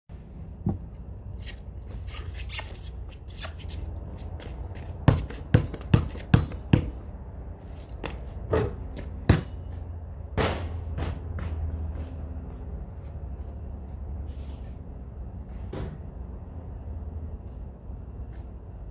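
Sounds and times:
basketball bouncing on concrete: 3.6 - 7.2, 8.0 - 9.8, 10.4 - 11.8.

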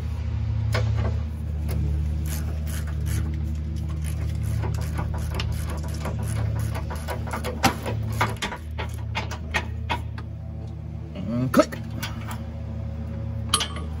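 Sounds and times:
low steady hum: 0.0 - 14.0
hand ratchet clicking: 2.2 - 9.0.

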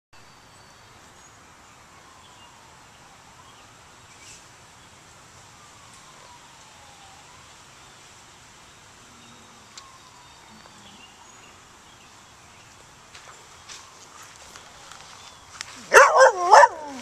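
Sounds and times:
outdoor hiss: 0.2 - 17.0
faint siren wailing: 1.6 - 11.8, 13.7 - 17.0.

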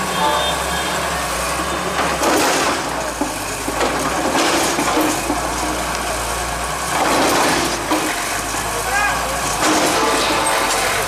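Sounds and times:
excavator diesel engine running: 0.0 - 11.0
clatter against concrete walls: 2.0 - 6.0, 6.9 - 8.6, 9.5 - 11.0.

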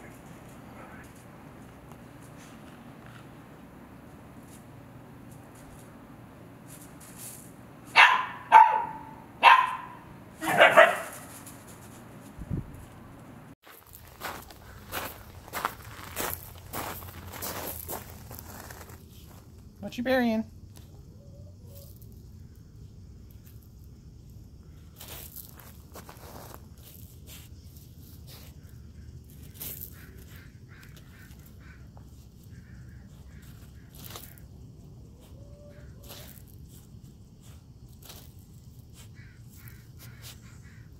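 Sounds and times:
puppy digging in gravel: 6.6 - 8.5, 9.7 - 12.9, 13.6 - 19.6, 24.2 - 40.4
dog barking: 7.9 - 11.3.

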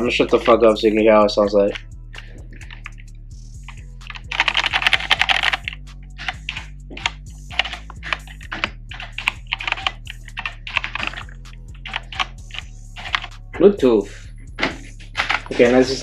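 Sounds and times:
mechanical keyboard typing: 4.0 - 13.3, 15.2 - 15.5.

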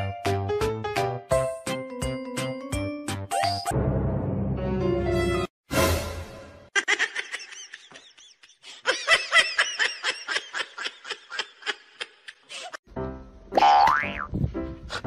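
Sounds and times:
music: 0.0 - 6.7, 12.8 - 15.0
person giggling: 6.8 - 12.8.

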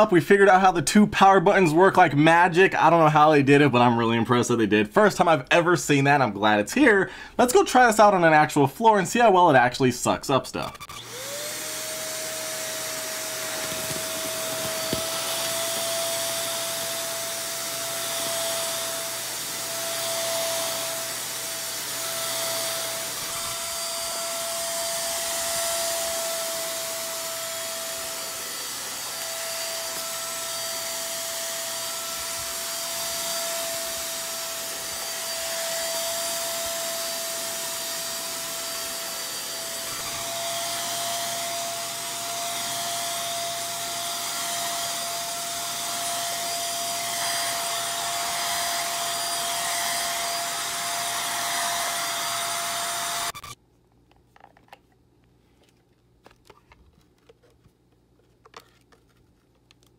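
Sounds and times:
vacuum motor whining: 10.8 - 53.6.

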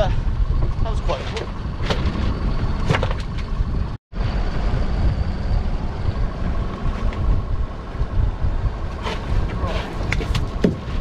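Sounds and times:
boat engine rumbling: 0.0 - 11.0
wind buffeting microphone: 0.0 - 11.0.

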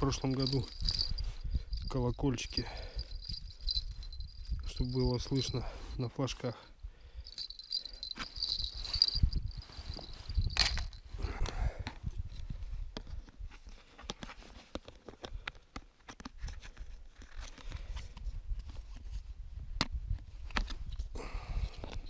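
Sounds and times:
fabric bag rustling: 7.3 - 11.0
wind buffeting microphone: 8.0 - 13.0.

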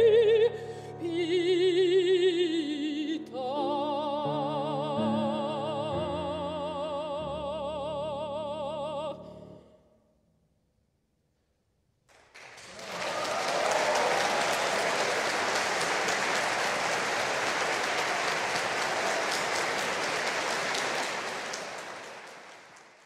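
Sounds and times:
audience applause: 12.1 - 23.0.

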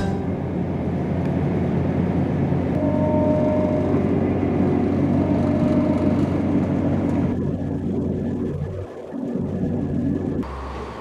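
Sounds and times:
train engine and wheels rumbling: 0.0 - 11.0
faint high whine: 2.7 - 8.8.

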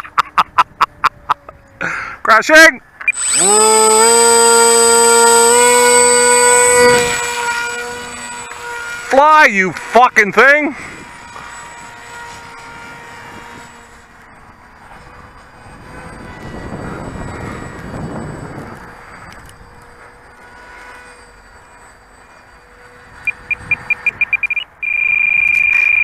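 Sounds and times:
model plane motor droning: 0.0 - 26.0
short electronic beeps: 3.0 - 3.5, 23.2 - 26.0.

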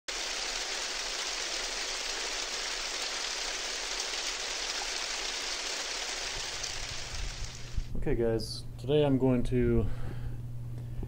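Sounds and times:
rain-like hiss: 0.1 - 7.9.

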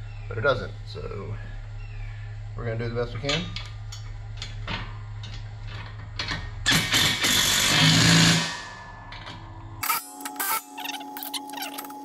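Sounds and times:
bolts clinking against metal: 3.1 - 6.5
cordless impact wrench running: 6.7 - 8.4.

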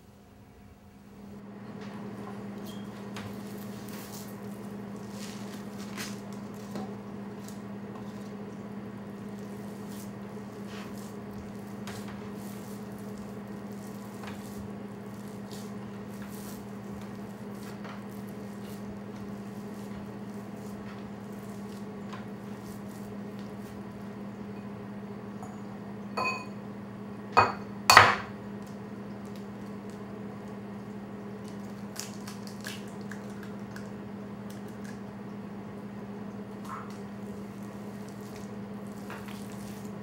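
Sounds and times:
hands kneading raw meat: 3.0 - 24.3, 28.6 - 35.1, 36.3 - 40.0.

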